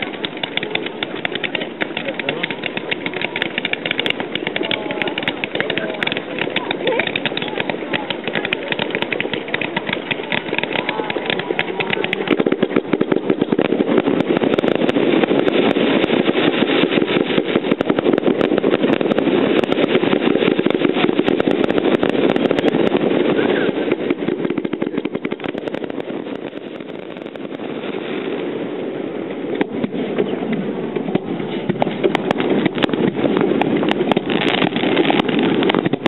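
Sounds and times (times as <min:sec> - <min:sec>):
firework crackling and popping: 0:00.0 - 0:36.0.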